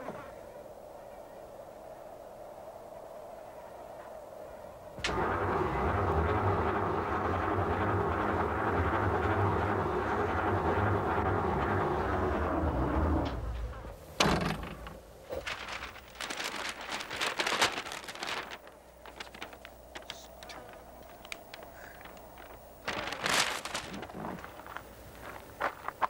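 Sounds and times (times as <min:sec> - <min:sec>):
paper map crackling: 0:05.1 - 0:13.0, 0:14.5 - 0:26.0
car engine running: 0:05.1 - 0:13.9.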